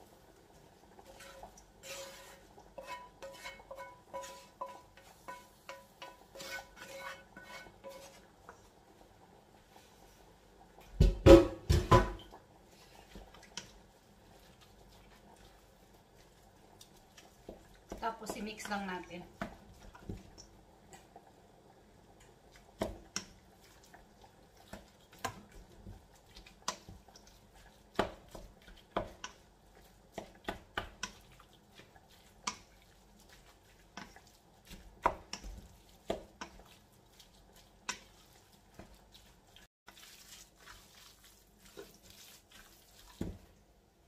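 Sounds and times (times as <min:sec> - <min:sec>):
wooden spatula scraping steel bowl: 0:01.0 - 0:08.6.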